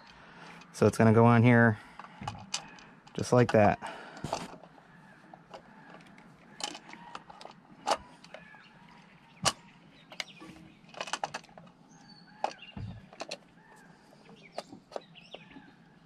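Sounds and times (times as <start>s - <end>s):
plastic clicks and rattles: 4.2s - 13.5s
dull thump: 12.8s - 13.1s.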